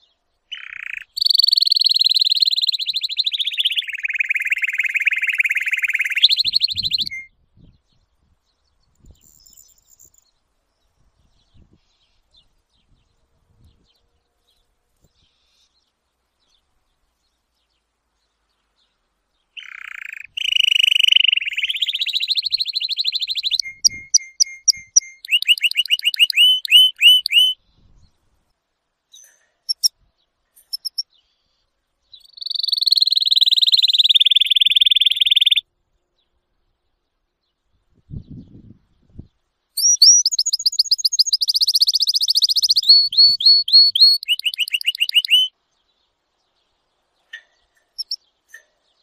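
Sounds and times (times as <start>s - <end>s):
canary singing trills: 0.0s - 7.3s, 8.9s - 10.4s, 19.5s - 27.6s, 29.1s - 30.0s, 30.6s - 35.7s, 39.8s - 46.1s, 47.0s - 49.0s.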